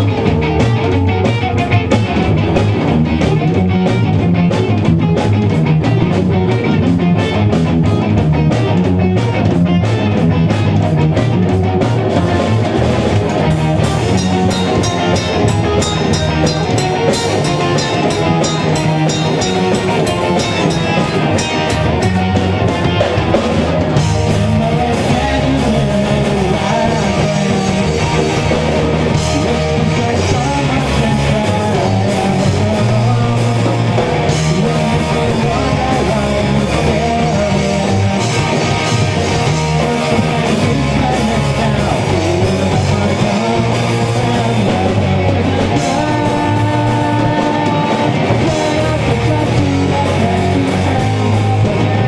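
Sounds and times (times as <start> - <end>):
live rock band: 0.0 - 52.0
ticking cymbal beat: 13.6 - 22.4.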